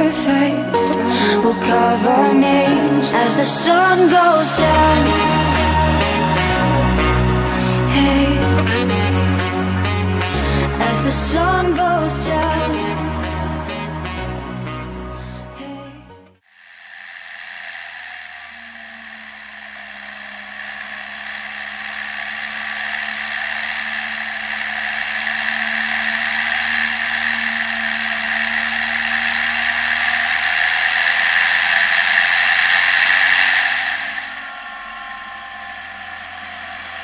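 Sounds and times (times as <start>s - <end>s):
tractor engine drone: 0.0s - 15.0s, 16.5s - 37.0s
strong hiss: 16.5s - 37.0s.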